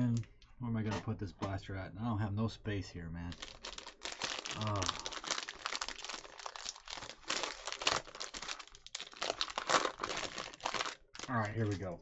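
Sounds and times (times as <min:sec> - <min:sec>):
foil wrapper crinkling and tearing: 0:03.3 - 0:11.9.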